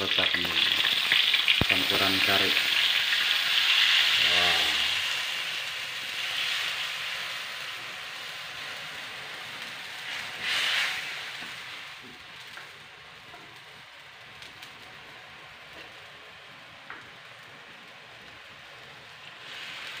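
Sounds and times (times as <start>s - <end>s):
curry sizzling in hot oil: 0.0s - 20.0s.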